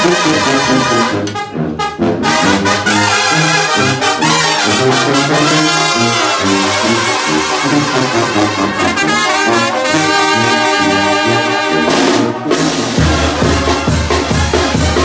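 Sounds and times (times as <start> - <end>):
brass band playing: 0.0 - 15.0
drum beats: 11.8 - 15.0.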